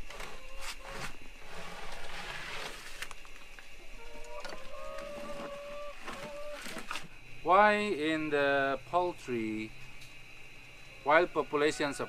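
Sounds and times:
plastic scoop scraping: 0.0 - 3.2.

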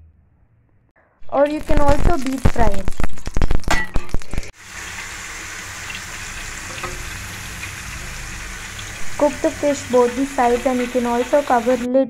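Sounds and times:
sharp crackles: 1.2 - 4.6
fish sizzling in oil: 1.5 - 11.9.

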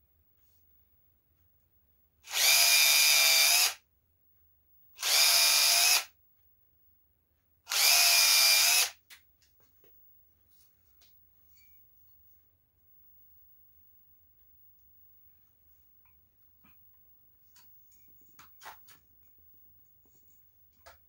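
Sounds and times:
cordless drill boring: 2.2 - 3.8, 5.0 - 6.1, 7.7 - 9.0.

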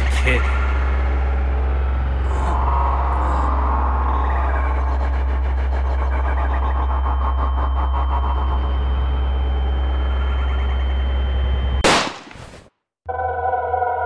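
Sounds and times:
low ambient drone: 0.0 - 11.8
synthesizer music: 0.0 - 11.8
loud gunshot: 11.8 - 12.6.

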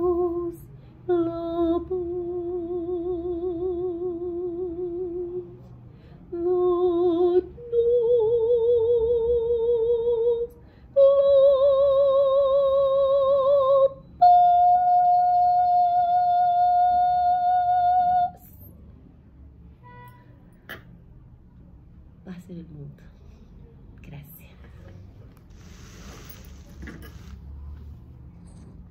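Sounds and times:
woman singing operatic notes: 0.0 - 5.6, 6.3 - 18.5.

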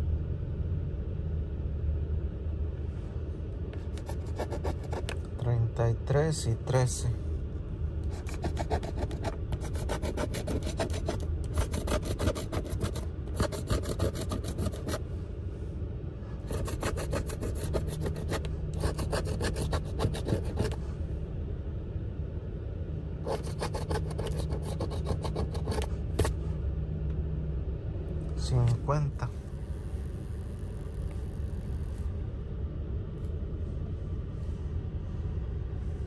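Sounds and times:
coin scratching lottery ticket: 3.8 - 5.2, 8.1 - 15.0, 16.5 - 20.8, 23.3 - 26.3.

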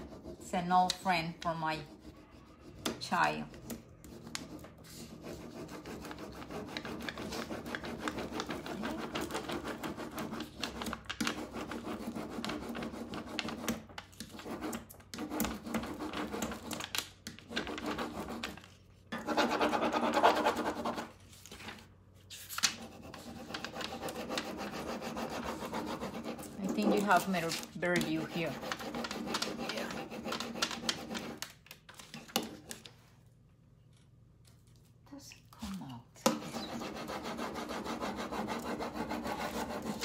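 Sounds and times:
scratchy rubbing strokes: 4.1 - 13.4, 22.8 - 31.4, 36.4 - 40.0.

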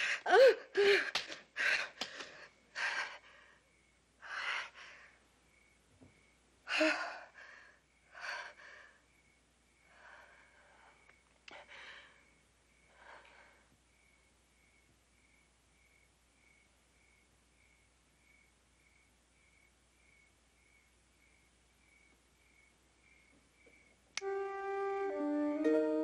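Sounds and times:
woman panting and gasping: 0.0 - 3.6, 4.2 - 5.2, 6.7 - 9.0.

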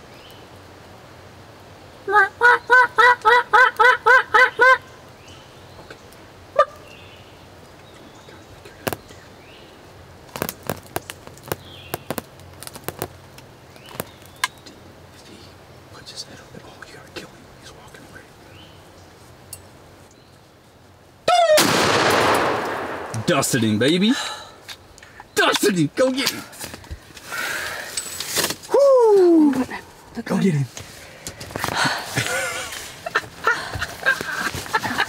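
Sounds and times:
wild turkey yelping: 2.1 - 4.9, 6.5 - 6.9, 21.3 - 21.7.

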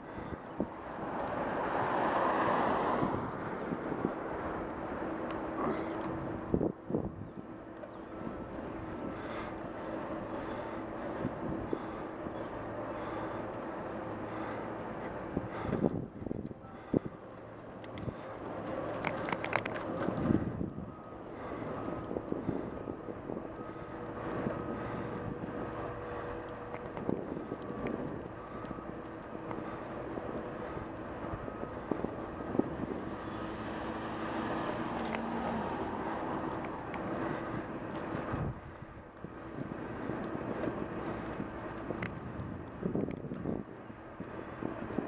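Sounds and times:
wind noise on microphone: 0.0 - 12.1, 15.2 - 17.2, 17.9 - 45.0
bicycle tyres on asphalt: 0.0 - 45.0.

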